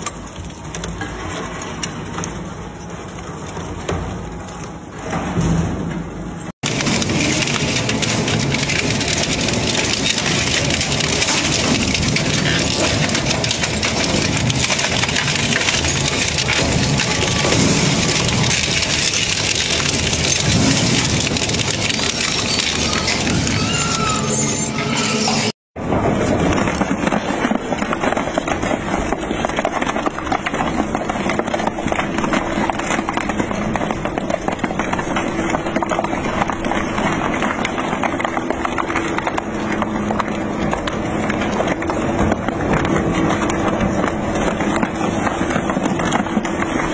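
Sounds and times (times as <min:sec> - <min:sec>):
shredder crunching metal: 0:00.0 - 0:46.9
shredder chewing plastic panel: 0:06.6 - 0:24.3.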